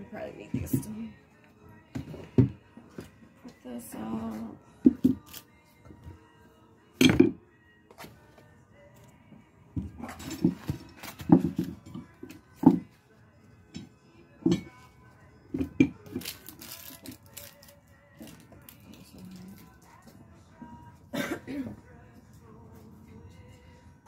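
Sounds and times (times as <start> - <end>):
tools knocking on worktable: 7.0 - 7.4, 12.6 - 12.9.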